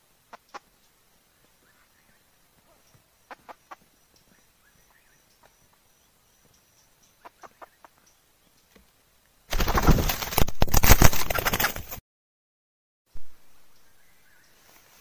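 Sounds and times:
hen clucking: 0:00.3 - 0:00.7, 0:03.2 - 0:03.9, 0:07.2 - 0:08.0.

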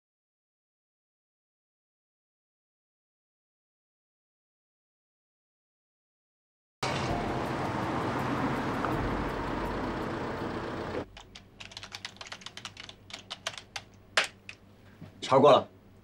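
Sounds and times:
rapid typing on keyboard: 0:11.0 - 0:14.6.

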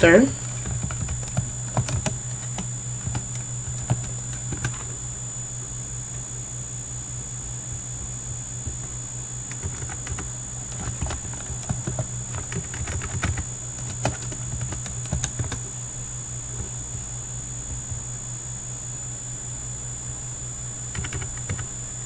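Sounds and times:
high-pitched whine: 0:00.0 - 0:20.4
low electrical hum: 0:00.0 - 0:22.0
keyboard typing: 0:00.4 - 0:04.9, 0:09.5 - 0:15.6, 0:20.9 - 0:21.6.

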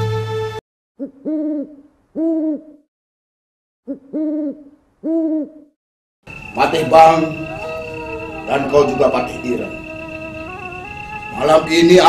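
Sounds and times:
music: 0:00.0 - 0:00.6
owl hooting: 0:01.0 - 0:02.9, 0:03.9 - 0:05.7, 0:06.3 - 0:12.0.

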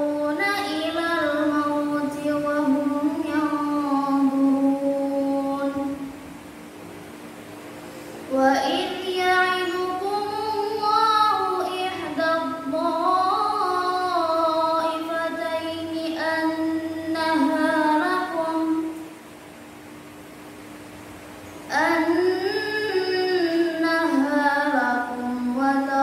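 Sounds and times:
girl reciting melodically: 0:00.0 - 0:06.2, 0:08.3 - 0:19.0, 0:21.7 - 0:26.0.

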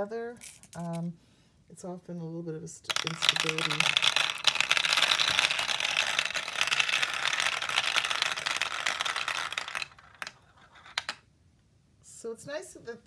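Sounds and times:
marbles clattering through plastic: 0:00.4 - 0:01.1, 0:02.8 - 0:11.2.

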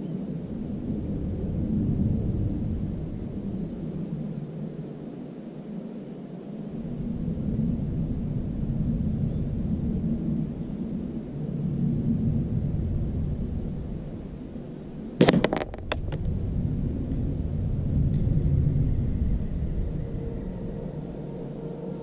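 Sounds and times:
wind rumble: 0:00.0 - 0:05.6, 0:06.3 - 0:22.0
pellet striking plastic cap: 0:15.2 - 0:16.2
plastic cap clattering: 0:15.2 - 0:16.2.

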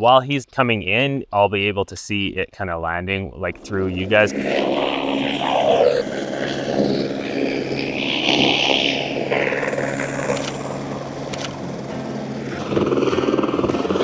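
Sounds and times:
helicopter rotor and engine drone: 0:03.5 - 0:14.0.

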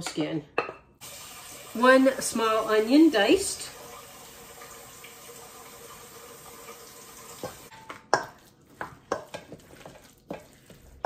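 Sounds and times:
utensil scraping metal bowl: 0:07.4 - 0:11.0.

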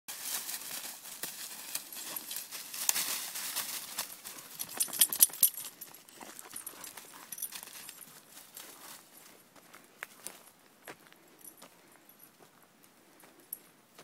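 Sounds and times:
footsteps on dry leaves: 0:00.1 - 0:04.6, 0:06.3 - 0:10.4.

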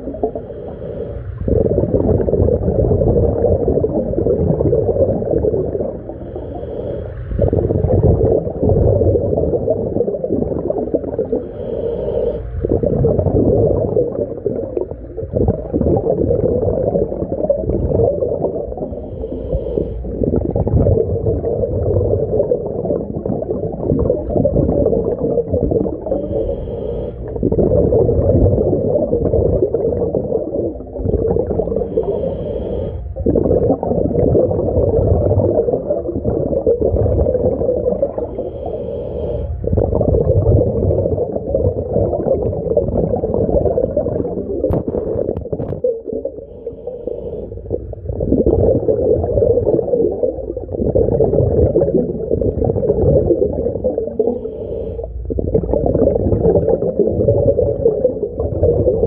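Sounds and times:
gurgle of exhaled bubbles: 0:00.0 - 0:59.0
faint hiss of inhaled breath: 0:00.2 - 0:01.5, 0:06.0 - 0:07.5, 0:11.3 - 0:12.8, 0:18.8 - 0:20.3, 0:26.0 - 0:27.4, 0:31.7 - 0:33.2, 0:38.1 - 0:39.8, 0:46.3 - 0:48.1, 0:54.1 - 0:55.4.

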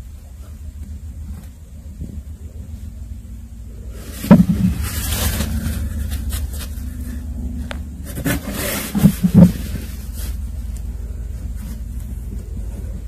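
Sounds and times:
microphone handling rumble: 0:00.0 - 0:13.0
loud bumps: 0:03.6 - 0:13.0
cardboard rustling and scraping: 0:03.9 - 0:13.0.

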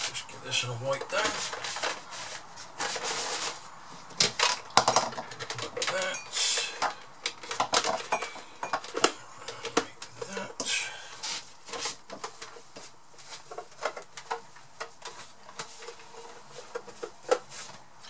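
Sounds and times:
plastic jug clicks and knocks: 0:04.2 - 0:06.0.

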